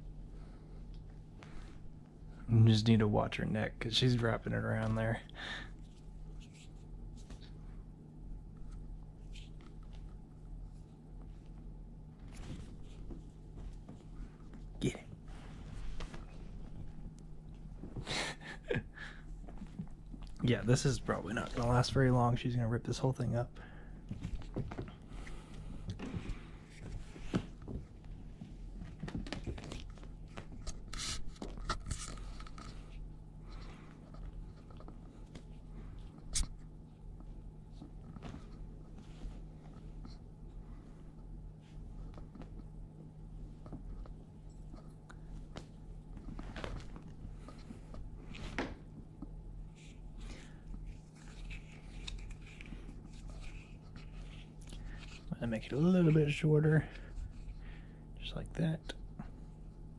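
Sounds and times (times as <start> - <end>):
steady low hum: 0.0 - 59.9
kitten thumping and scuffing on carpet: 11.2 - 18.2, 24.0 - 32.1
feather toy rustling on carpet: 12.2 - 18.0.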